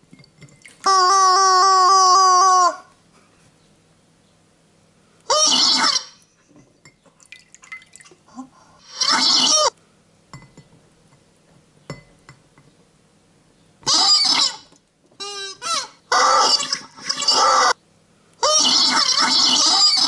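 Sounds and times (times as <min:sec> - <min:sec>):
rubber chicken toy screech: 0:05.3 - 0:06.2, 0:08.8 - 0:09.7, 0:13.8 - 0:17.8, 0:18.4 - 0:20.0
faint water drips: 0:06.8 - 0:08.5.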